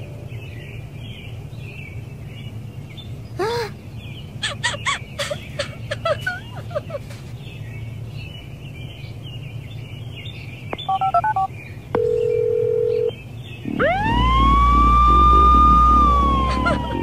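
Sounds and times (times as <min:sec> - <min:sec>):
phone keypad beeps: 0:10.8 - 0:13.1
steady dial tone: 0:10.9 - 0:13.1
ambulance siren: 0:13.7 - 0:17.0.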